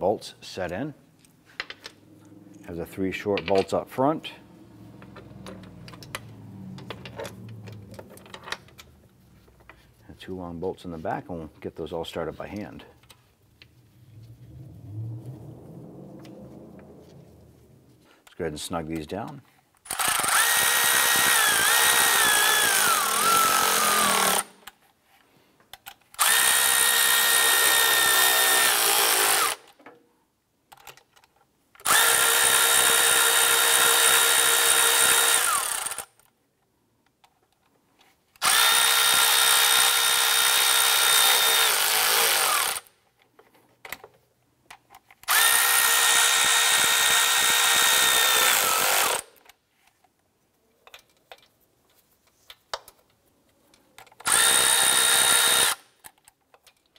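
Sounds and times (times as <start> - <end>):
electric ratchet whirring: 19.9 - 24.8, 26.2 - 29.7, 31.8 - 36.2, 38.4 - 42.9, 45.2 - 49.4, 54.2 - 55.9.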